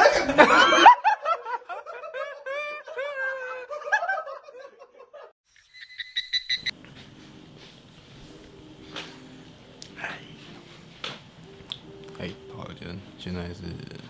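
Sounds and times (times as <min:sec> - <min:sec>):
fast high electronic beeps: 0:05.7 - 0:06.7.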